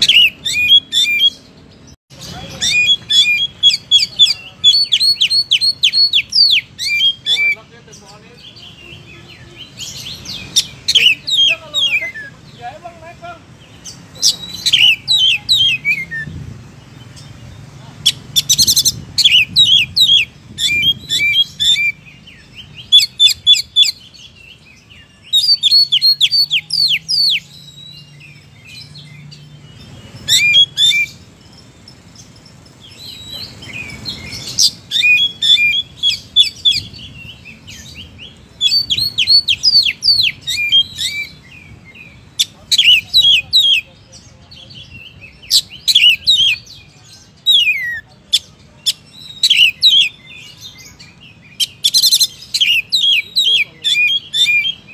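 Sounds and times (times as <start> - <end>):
bird singing whistled notes: 0.0 - 12.7, 13.6 - 54.9.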